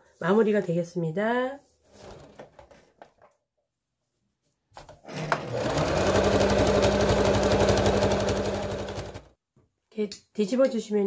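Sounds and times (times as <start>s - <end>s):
sewing machine stitching: 5.0s - 9.3s.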